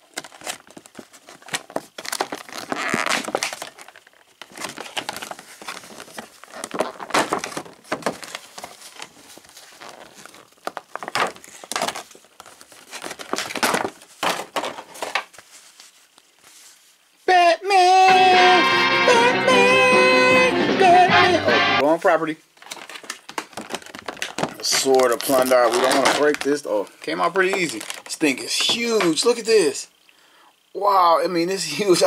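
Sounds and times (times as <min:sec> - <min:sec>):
plastic packaging crinkling: 0:00.0 - 0:17.2, 0:22.5 - 0:29.8.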